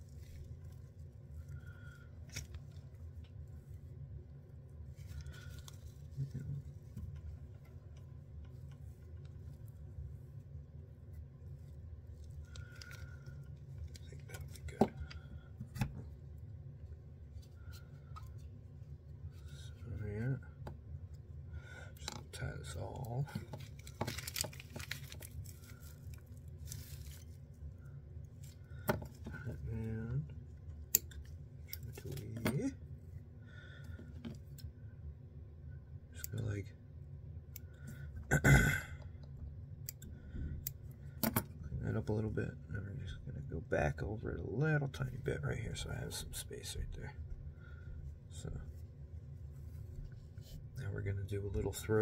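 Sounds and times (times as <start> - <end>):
low steady hum: 0.0 - 52.0
fly-tying handling clicks and rustles: 21.9 - 27.6.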